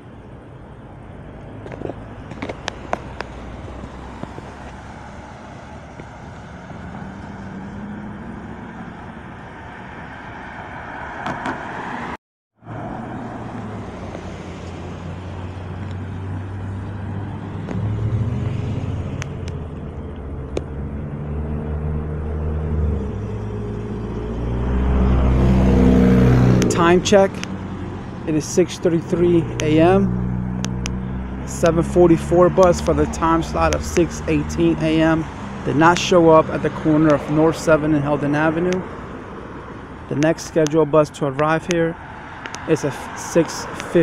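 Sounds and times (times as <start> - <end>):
car engines and tyres on road: 0.0 - 44.0
low engine rumble: 12.6 - 44.0.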